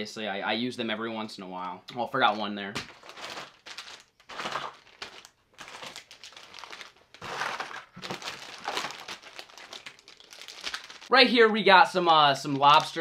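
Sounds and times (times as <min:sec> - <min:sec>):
plastic packaging crinkling: 0:02.3 - 0:11.1, 0:12.4 - 0:13.0.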